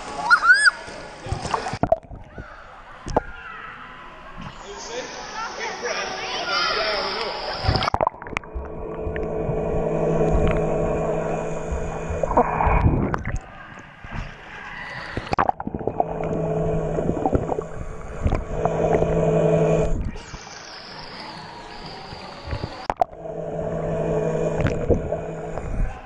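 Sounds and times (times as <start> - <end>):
water noise: 0.0 - 2.4, 4.5 - 26.0
underwater motor humming: 7.2 - 26.0.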